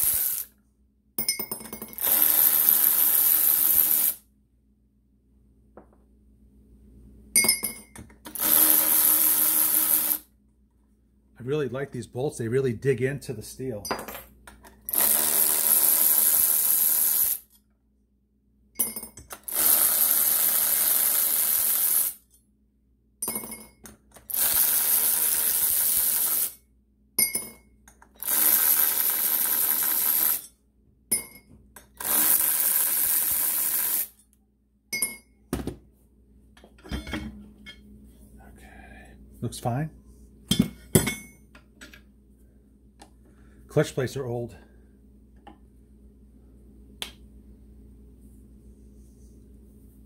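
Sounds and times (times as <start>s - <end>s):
power drill running: 0.0s - 0.5s, 2.0s - 4.2s, 8.3s - 10.2s, 14.9s - 17.4s, 19.5s - 22.2s, 24.3s - 26.5s, 28.2s - 30.4s, 32.0s - 34.1s.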